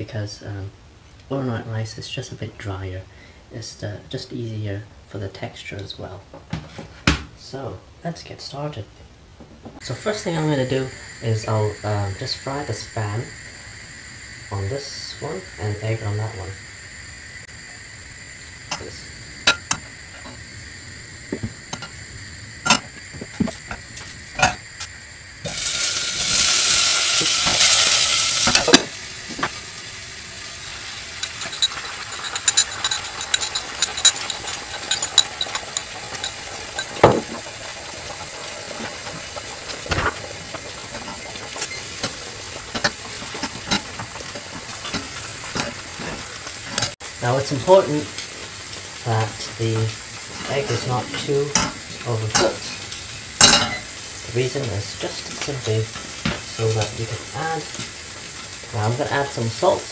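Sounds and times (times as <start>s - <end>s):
egg sizzling in a frying pan: 9.8s - 59.9s
food sizzling in hot oil: 9.8s - 59.9s
utensils clicking on pans: 18.7s - 20.4s, 21.4s - 22.0s, 22.6s - 24.6s, 25.5s - 29.6s, 30.4s - 47.0s, 48.0s - 59.8s.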